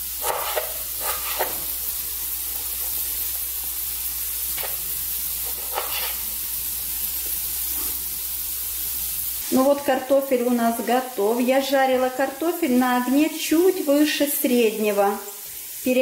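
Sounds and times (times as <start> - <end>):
potatoes sizzling in oil: 0.0 - 16.0.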